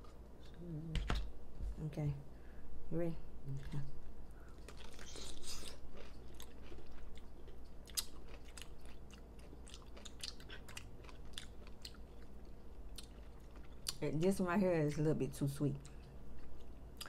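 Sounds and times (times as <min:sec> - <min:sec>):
crunchy chewing: 0:04.4 - 0:14.0.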